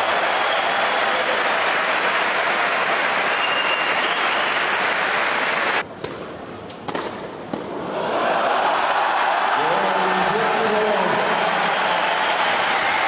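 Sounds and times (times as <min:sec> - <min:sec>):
crowd applauding and cheering: 0:00.0 - 0:05.8, 0:08.1 - 0:13.0
racket striking ball: 0:05.9 - 0:07.8.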